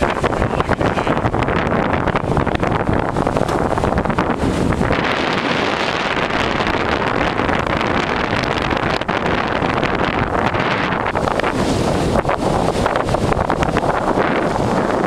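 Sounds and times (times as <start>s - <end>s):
water rushing along hull: 0.0s - 15.0s
wind buffeting microphone: 0.0s - 15.0s.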